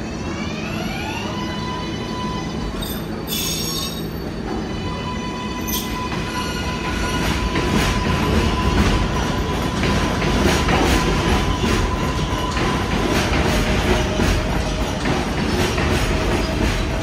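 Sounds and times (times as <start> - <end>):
train wheels clicking over rail joints: 5.7 - 17.0.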